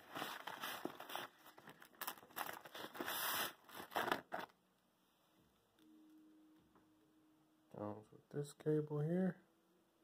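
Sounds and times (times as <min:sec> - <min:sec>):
fabric and plastic rustling: 0:00.0 - 0:04.6.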